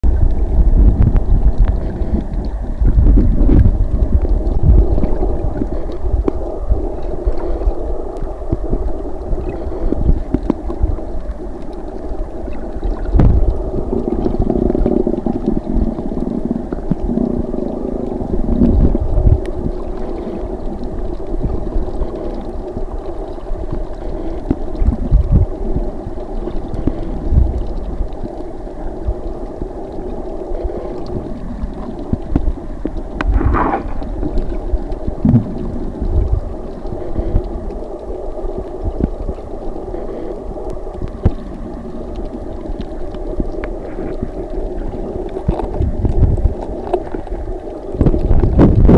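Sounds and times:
dull low thumps: 0.0 - 6.2, 35.2 - 36.5
underwater hum and rumble: 0.0 - 48.9.

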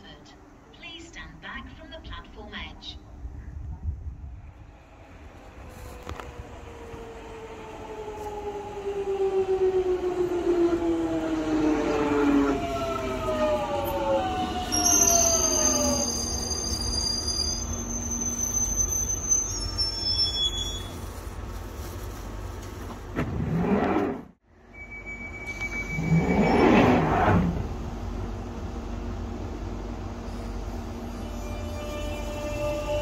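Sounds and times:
rush of train noise: 0.4 - 24.3, 25.0 - 33.0
train brakes squealing: 14.6 - 21.1, 24.7 - 27.1, 30.3 - 33.0.

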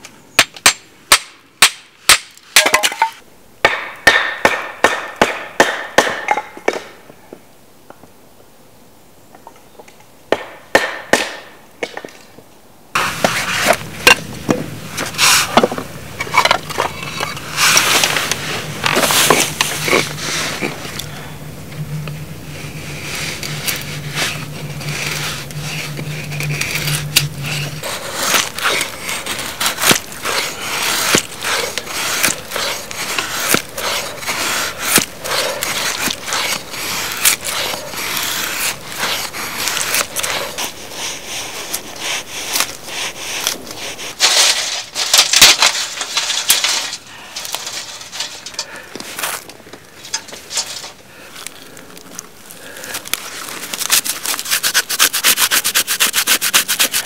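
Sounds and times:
low steady hum: 12.4 - 55.0
knife scraping wood: 13.0 - 21.1, 22.4 - 57.0
loud rustling: 13.0 - 57.0.

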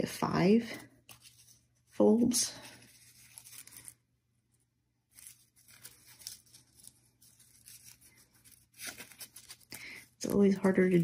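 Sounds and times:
crepe paper rustling and crinkling: 0.8 - 4.1, 5.1 - 11.0.

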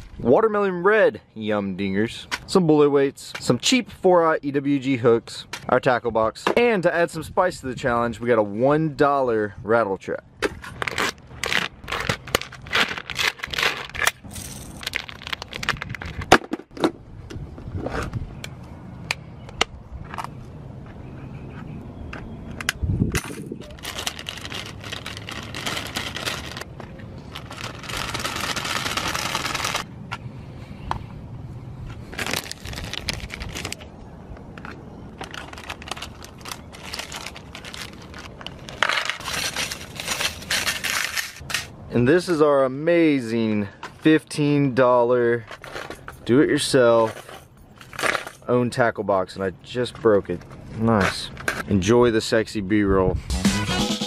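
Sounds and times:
plastic bag crinkling: 10.8 - 16.3, 23.6 - 29.8, 32.1 - 33.9, 35.1 - 41.5.

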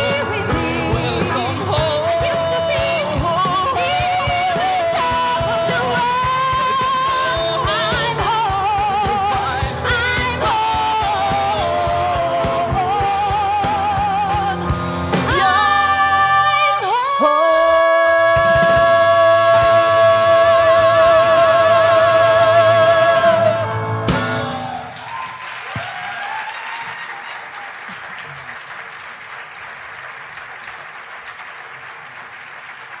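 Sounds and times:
woman and man singing: 0.0 - 23.8
grand piano: 0.0 - 25.2
drum kit: 0.0 - 26.1
audience applause: 24.5 - 33.0.

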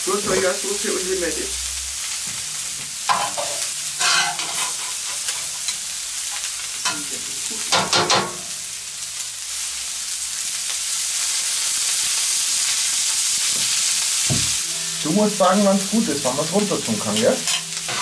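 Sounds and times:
vegetables sizzling on griddle: 0.0 - 18.0
metal utensils clattering and scraping: 3.1 - 7.1, 17.0 - 18.0.

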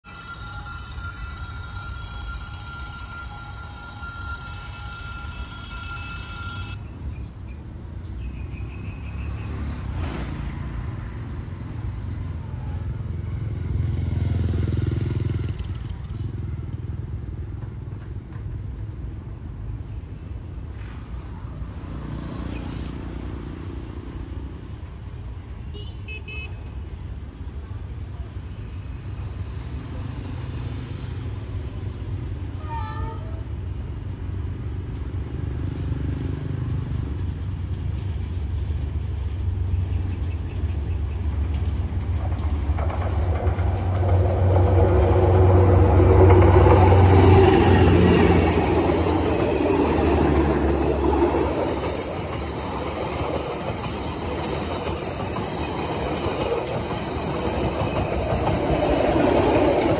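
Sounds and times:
train coaches rolling on rails: 0.1 - 12.4, 14.4 - 22.2, 26.7 - 59.9
locomotive engine rumble: 36.9 - 59.9.

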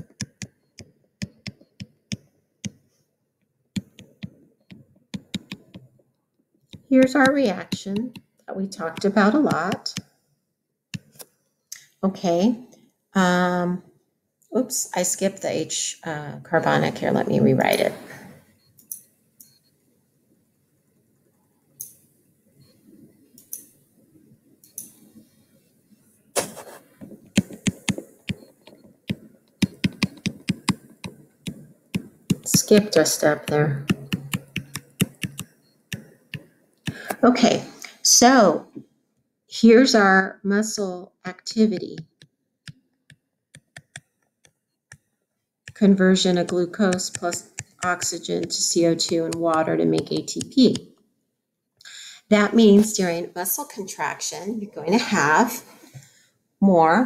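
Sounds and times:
stylus tapping on tablet screen: 0.0 - 2.8, 3.8 - 6.0, 6.7 - 10.1, 11.0 - 11.2, 26.4 - 37.2, 41.6 - 51.0.

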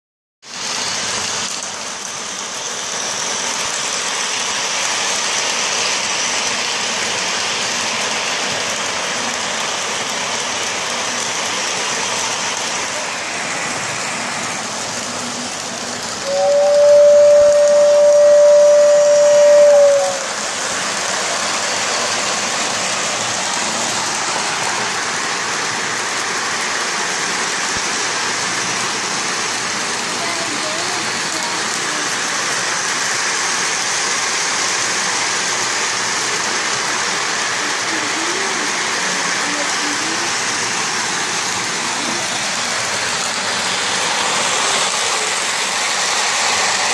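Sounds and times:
model trains rolling on metal track: 0.4 - 46.9
model train whistle: 16.2 - 20.4.

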